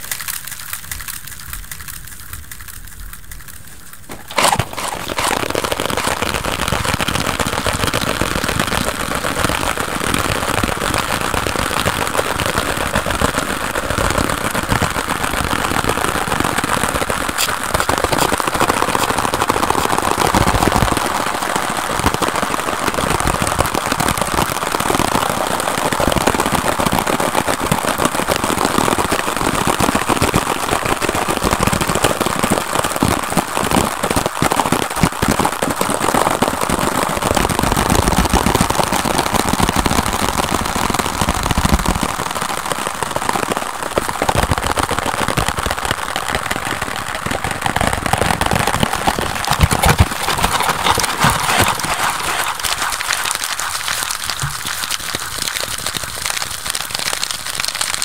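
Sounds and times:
fingers tapping and scratching cardboard: 0:03.3 - 0:07.0, 0:17.3 - 0:20.8, 0:48.2 - 0:55.7.

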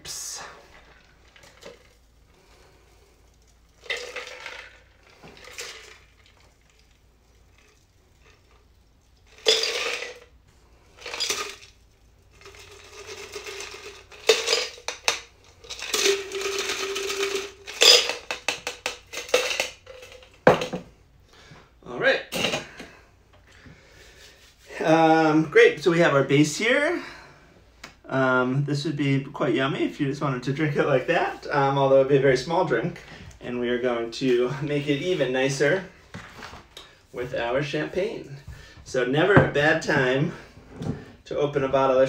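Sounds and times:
ice rattling in metal shaker: 0:03.3 - 0:10.3, 0:11.0 - 0:20.4.

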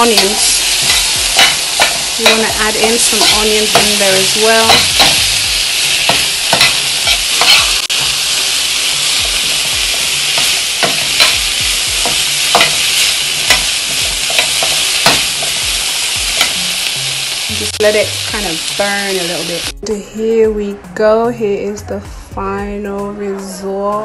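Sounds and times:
spatula scraping and knocking pan: 0:00.0 - 0:08.2, 0:09.2 - 0:16.7
vegetables sizzling in a frying pan: 0:00.0 - 0:19.7.

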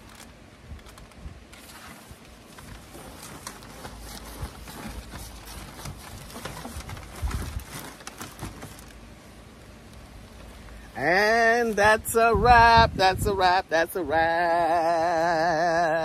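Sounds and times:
fabric cover rustling: 0:00.0 - 0:09.1.

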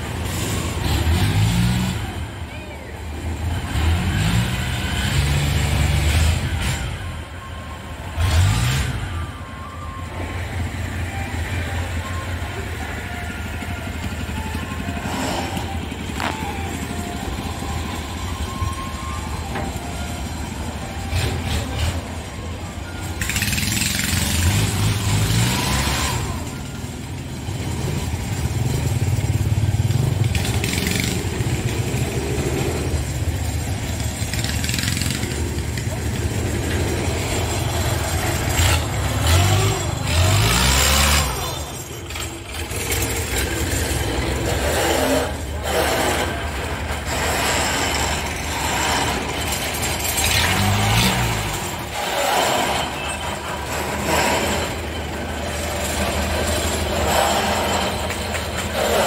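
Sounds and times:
diesel engine revving: 0:00.0 - 0:59.0.

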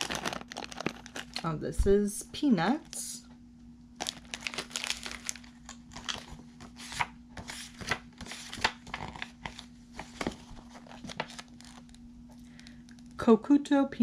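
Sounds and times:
glossy paper pages rustling: 0:00.0 - 0:01.4, 0:04.0 - 0:13.2.

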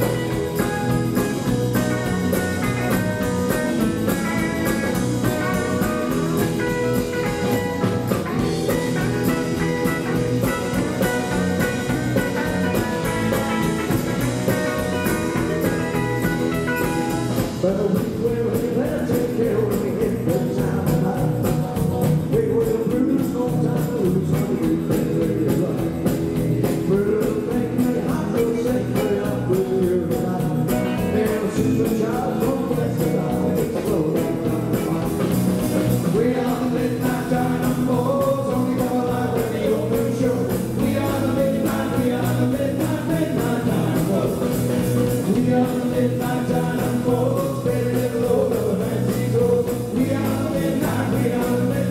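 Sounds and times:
drum kit steady beat: 0:00.0 - 0:51.9
electric guitars: 0:00.0 - 0:51.9
male lead vocal: 0:17.2 - 0:51.9.

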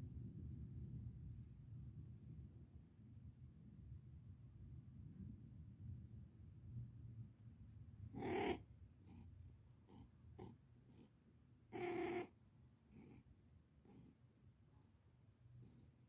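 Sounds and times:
cat meowing: 0:08.2 - 0:08.6, 0:11.7 - 0:12.3.

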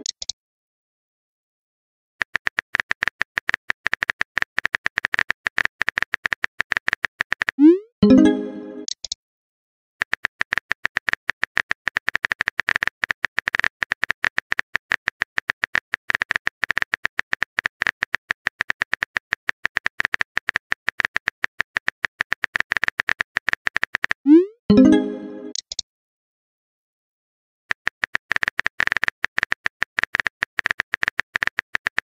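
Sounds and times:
keyboard typing clicks: 0:00.0 - 0:00.3, 0:02.2 - 0:09.2, 0:10.0 - 0:25.8, 0:27.7 - 0:32.0
sent message tone: 0:07.6 - 0:08.9, 0:24.3 - 0:25.5.

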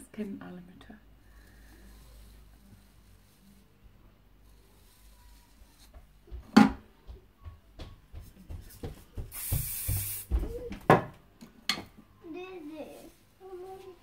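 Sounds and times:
short steady hiss: 0:09.2 - 0:10.6.

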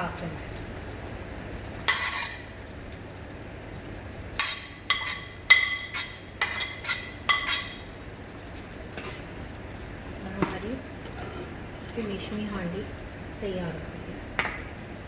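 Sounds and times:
food scraped into pan: 0:01.9 - 0:02.5, 0:04.4 - 0:07.8, 0:11.0 - 0:12.2.

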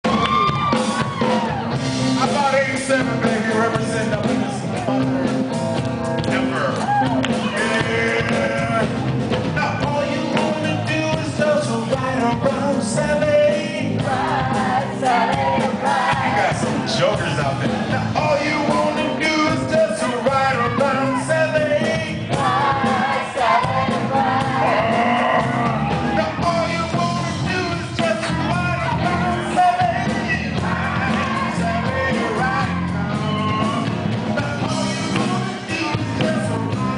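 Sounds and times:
rock guitar and drums: 0:00.0 - 0:36.9
singer belting into a microphone: 0:06.3 - 0:09.0, 0:24.2 - 0:36.9.

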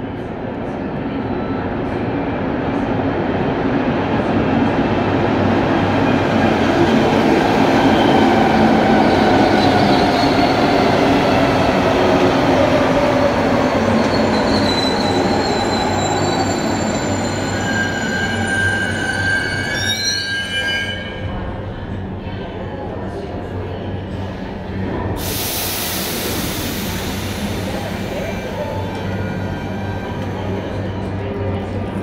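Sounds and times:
metro train running noise: 0:00.0 - 0:32.0
high-pitched brake squeals: 0:13.8 - 0:21.4.

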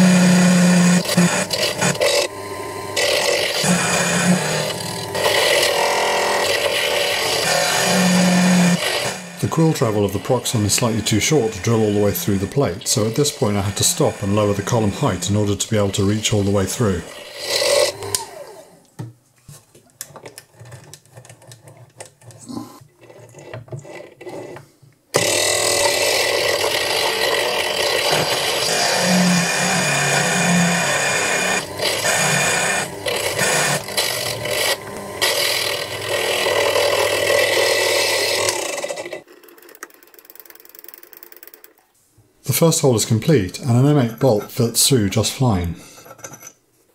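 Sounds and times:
drill grinding into granite: 0:00.0 - 0:18.7, 0:25.2 - 0:39.3.

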